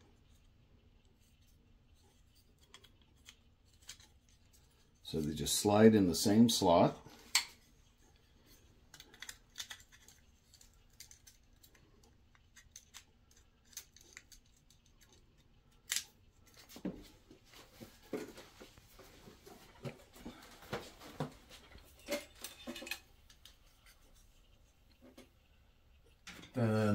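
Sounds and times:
small plastic clicks and rustles: 1.3 - 4.8, 7.3 - 16.7.

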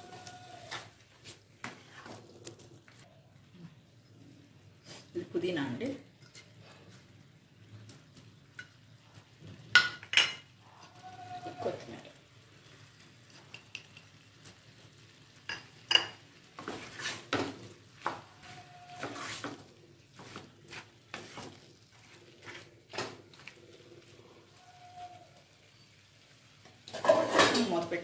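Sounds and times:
spatula scraping a pan: 16.5 - 23.6, 26.9 - 27.8.

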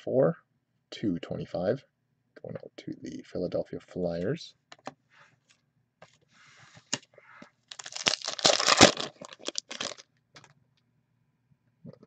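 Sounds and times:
foil wrapper tearing and crinkling: 7.7 - 10.5.

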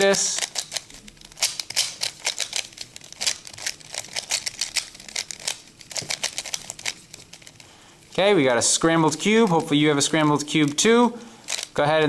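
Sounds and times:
puzzle cube clicking: 0.0 - 7.6, 11.5 - 11.8.

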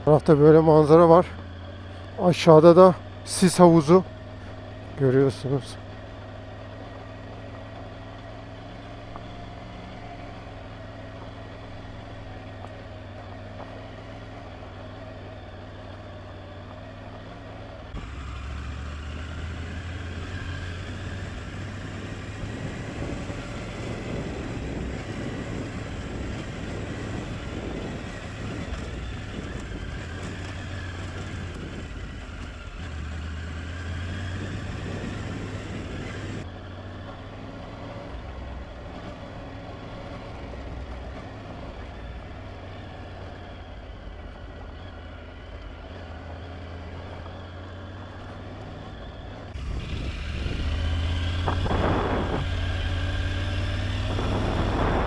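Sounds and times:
motorcycle engine running: 0.0 - 55.0
wind noise: 21.1 - 32.4, 34.2 - 36.4, 49.5 - 55.0.

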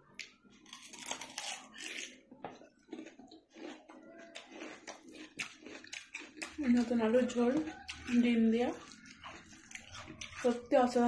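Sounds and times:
cucumber crunching: 0.2 - 10.8.

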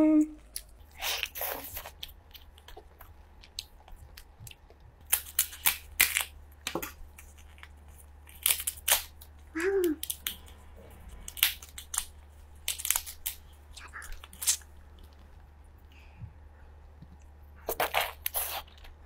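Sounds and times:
crab shell cracking: 1.9 - 10.4, 11.2 - 13.5.

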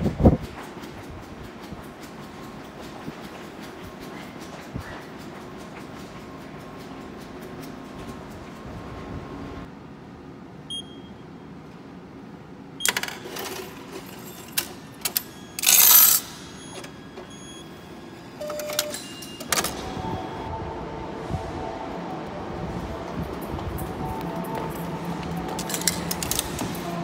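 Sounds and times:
machine clicks and clatter: 0.0 - 8.7, 12.8 - 17.3, 25.4 - 27.0
short beep: 10.7 - 11.2
coins rattling into tray: 13.0 - 16.4.

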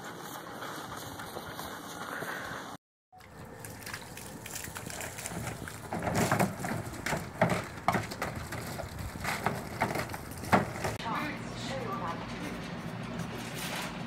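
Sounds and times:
hose water running onto paving: 3.2 - 11.0
puppy splashing in paddling pool: 3.2 - 11.0.

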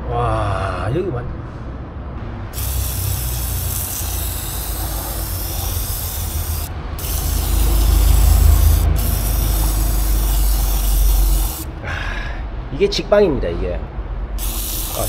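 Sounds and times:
aerosol spray hissing: 2.6 - 11.8, 14.4 - 15.0.

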